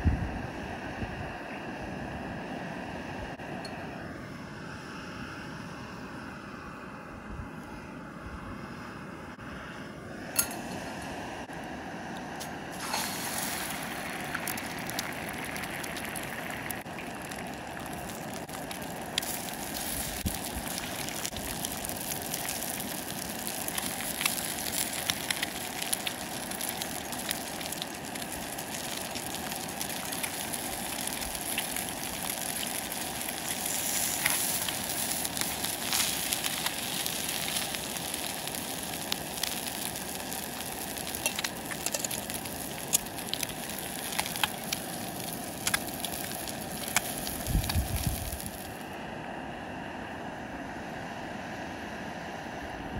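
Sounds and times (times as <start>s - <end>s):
food sizzling in a frying pan: 12.8s - 48.8s.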